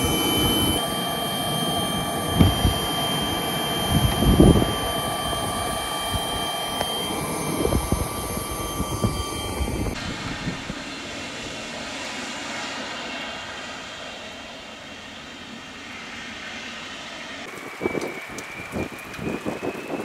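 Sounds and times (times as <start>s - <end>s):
wind buffeting microphone: 0.0s - 11.0s, 17.5s - 20.0s
jet engines whining: 0.0s - 20.0s.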